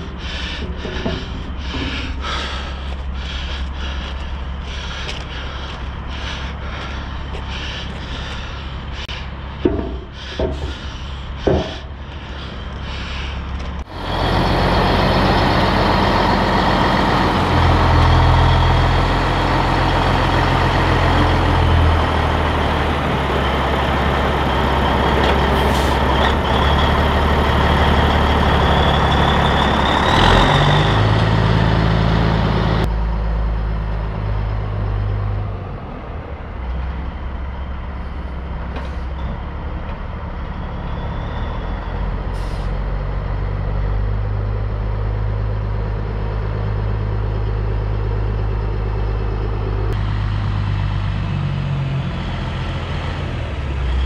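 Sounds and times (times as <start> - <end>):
diesel truck engine running: 0.0 - 54.0
sharp knocks: 9.6 - 11.9.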